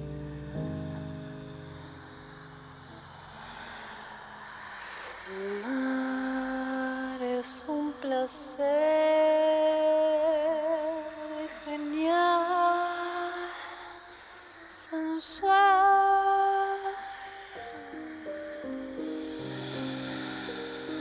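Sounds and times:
woman singing with vibrato: 5.1s - 18.3s.

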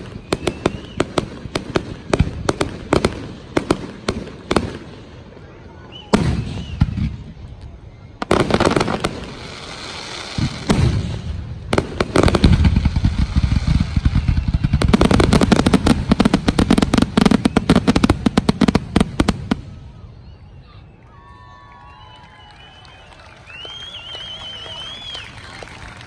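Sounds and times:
fireworks booming: 0.0s - 20.0s
fireworks crackling: 0.0s - 20.4s, 21.8s - 26.0s.

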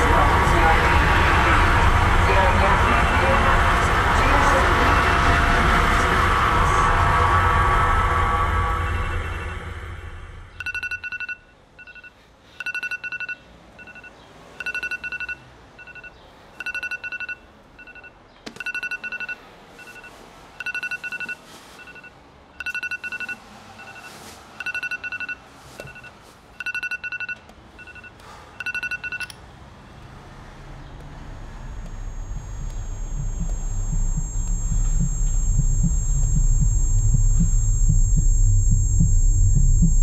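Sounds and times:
phone alarm beeping: 10.6s - 29.3s, 31.2s - 40.0s.

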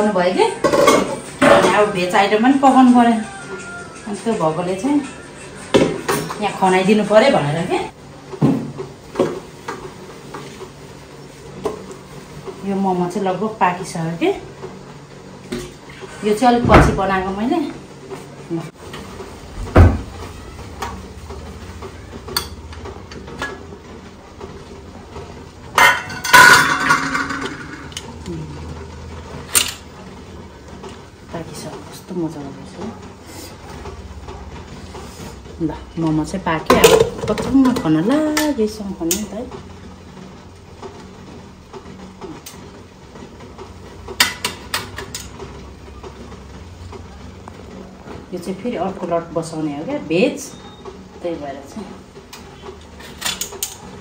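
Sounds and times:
metal pot clanking: 0.6s - 2.2s, 25.7s - 28.0s, 36.6s - 38.5s
metal steamer lid clanking: 25.8s - 27.8s.

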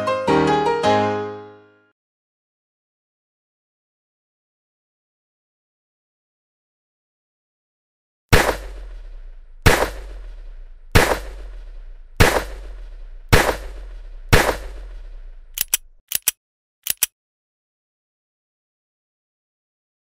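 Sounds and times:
revolver shots: 8.3s - 15.3s
revolver hammer clicking: 15.6s - 17.1s.

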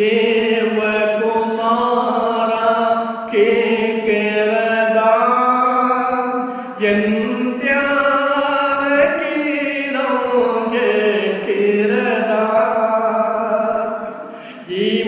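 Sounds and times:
man singing chant-like: 0.0s - 15.0s
man breathing: 14.2s - 14.7s.

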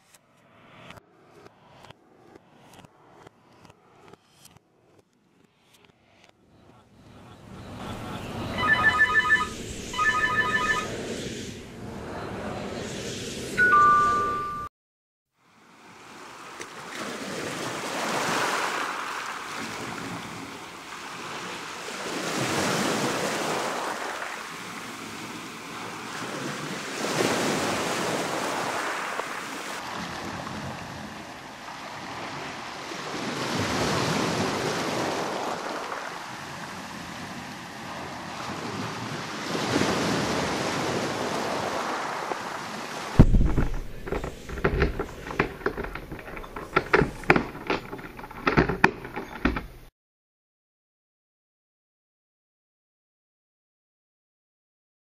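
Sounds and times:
ocean surf: 6.6s - 14.7s, 15.5s - 49.4s
two-note electronic tone: 8.5s - 10.9s, 13.6s - 14.7s.

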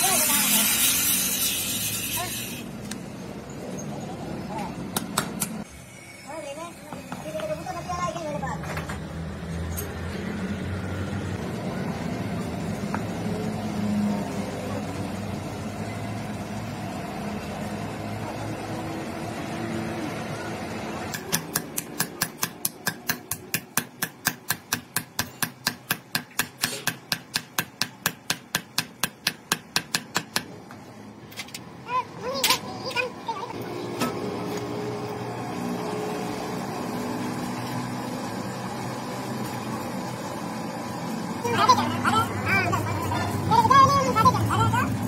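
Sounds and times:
hammer tapping on metal: 21.1s - 30.6s.

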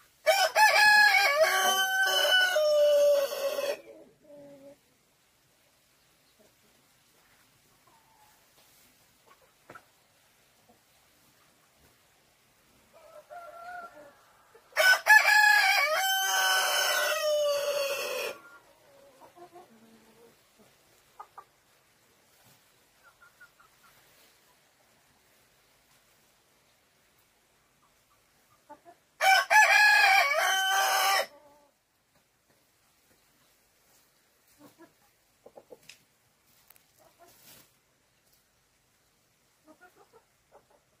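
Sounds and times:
rooster crowing: 0.3s - 3.8s, 13.0s - 18.4s, 29.2s - 31.3s
chickens clucking: 6.0s - 14.8s, 16.7s - 26.3s, 27.2s - 29.2s, 31.3s - 38.5s, 39.4s - 41.0s
hen clucks: 18.4s - 21.7s, 22.9s - 24.3s, 34.4s - 36.0s, 39.6s - 41.0s.

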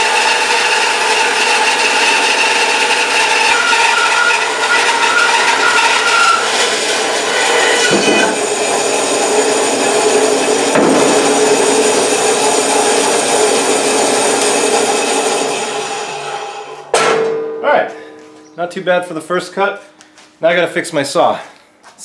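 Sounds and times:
bandsaw cutting log: 0.0s - 16.9s
bandsaw running: 0.0s - 16.9s.

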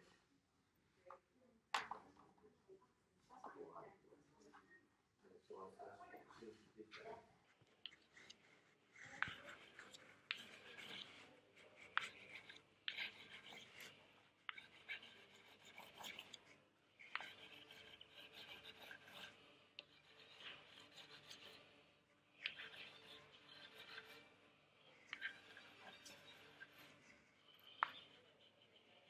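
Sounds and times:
drawing stick scribbling on paper: 8.0s - 29.0s.

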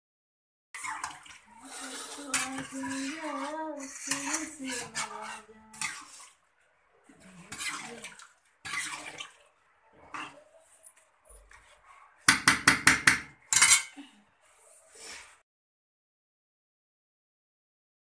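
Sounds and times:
background voice: 1.5s - 6.1s
steel plates and utensils clattering: 13.5s - 14.0s.

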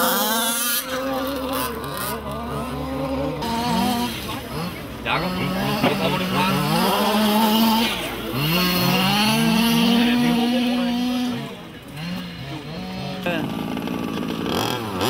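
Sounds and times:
small two-stroke engine revving: 0.0s - 15.0s.

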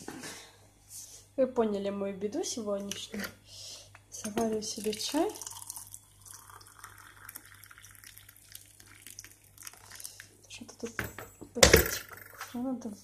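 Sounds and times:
water pouring into a mug: 4.4s - 10.4s.

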